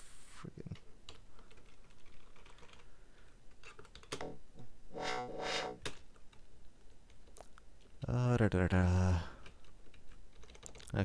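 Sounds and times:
keyboard typing: 1.1 - 2.8, 3.6 - 4.3, 9.4 - 10.9.

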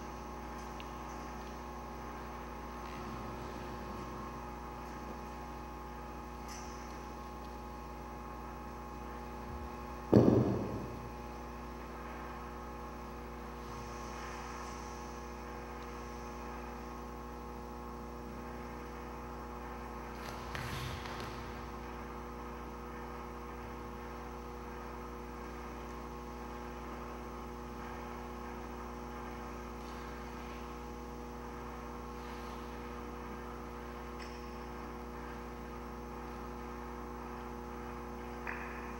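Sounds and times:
electrical mains hum: 0.0 - 38.9
loud short low thud: 10.1 - 11.1.

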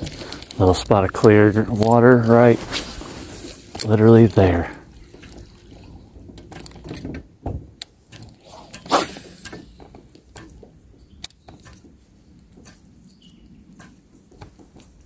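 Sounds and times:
short rushing noise: 8.4 - 9.4.

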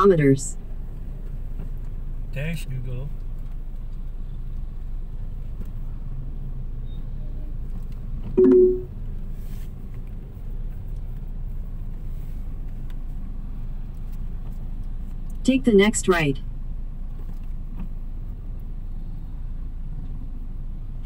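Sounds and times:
car engine rumble and road noise: 0.0 - 21.0
car horn beep: 8.4 - 8.9.

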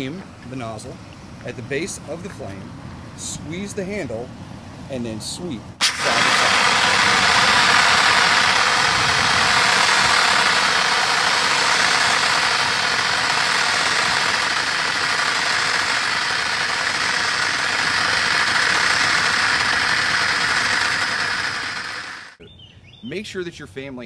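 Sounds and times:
hissing water spray: 5.8 - 22.4.

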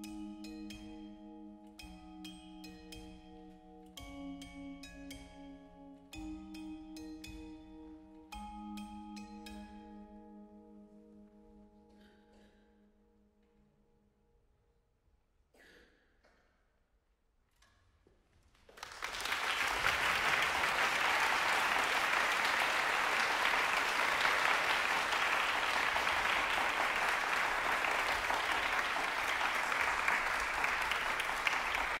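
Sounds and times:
audience applauding: 18.7 - 32.0.

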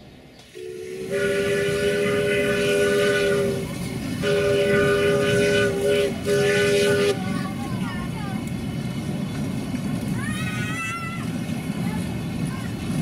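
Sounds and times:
locomotive rushing noise: 0.0 - 13.0
steam locomotive chime whistle: 0.5 - 7.2.

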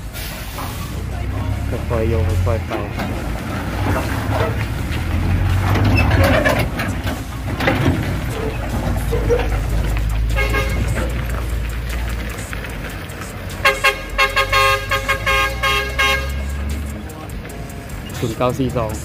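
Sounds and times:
truck diesel engine under load: 0.0 - 19.0
truck horn toot: 10.2 - 11.2, 13.5 - 16.9.

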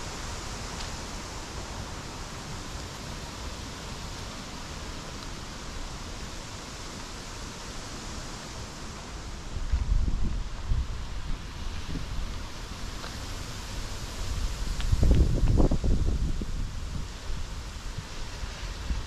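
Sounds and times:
wind buffeting microphone: 9.6 - 19.0.

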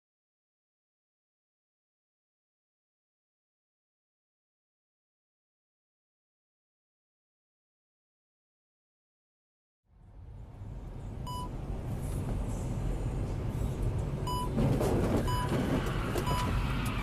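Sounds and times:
truck engine and road rumble: 9.9 - 17.0
electronic warning beeps: 11.3 - 11.5, 14.2 - 14.6, 15.2 - 15.6, 16.2 - 16.6.

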